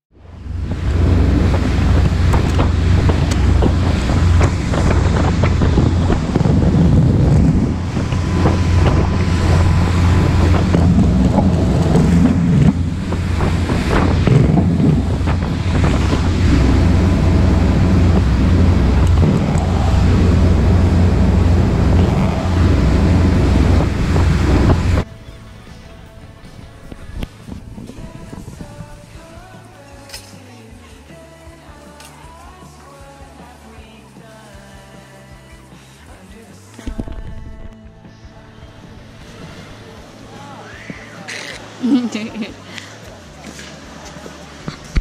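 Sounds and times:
low engine drone: 0:00.1 - 0:29.4
rushing water of wake: 0:00.1 - 0:37.7, 0:38.5 - 0:45.0
wind buffeting microphone: 0:00.2 - 0:25.2, 0:26.7 - 0:29.4.

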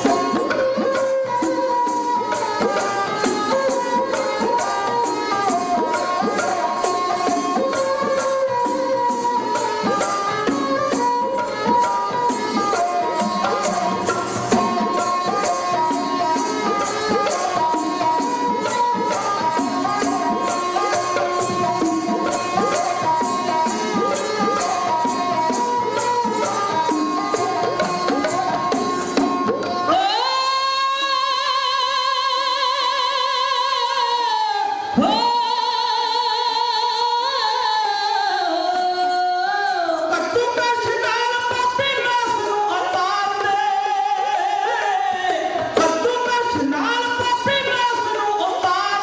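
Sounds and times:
rapid percussion strokes: 0:00.0 - 0:31.0
instrumental accompaniment: 0:00.0 - 0:49.0
ballad singing: 0:29.8 - 0:49.0.

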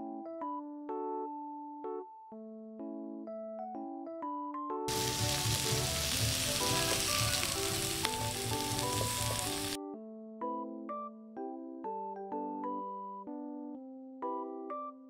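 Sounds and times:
soft electric piano music: 0:00.0 - 0:09.9
steady hiss: 0:04.9 - 0:09.8.

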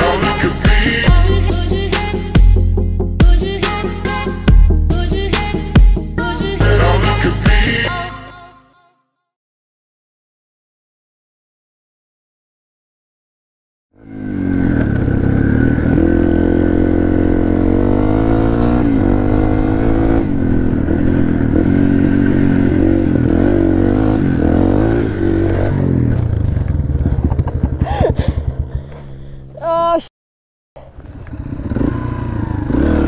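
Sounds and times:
dirt bike engine revving: 0:00.0 - 0:02.7, 0:14.0 - 0:29.4, 0:30.9 - 0:33.0.

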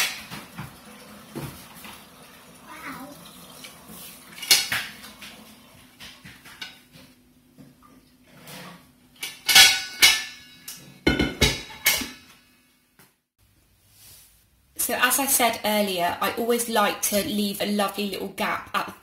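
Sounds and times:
steel pan clanking on worktop: 0:09.2 - 0:12.3.

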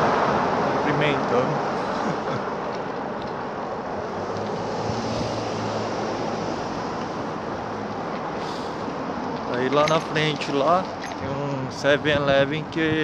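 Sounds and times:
faint traffic engine hum: 0:00.0 - 0:13.0
wind noise on microphone: 0:03.9 - 0:09.3, 0:11.1 - 0:13.0.

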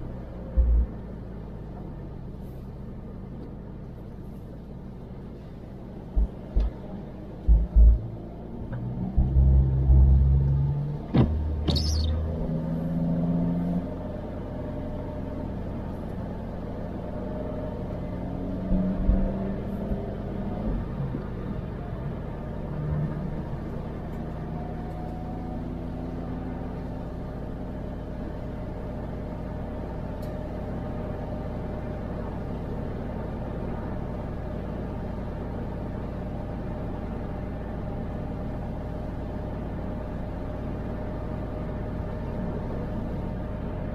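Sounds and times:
car engine and road rumble: 0:00.0 - 0:43.9.

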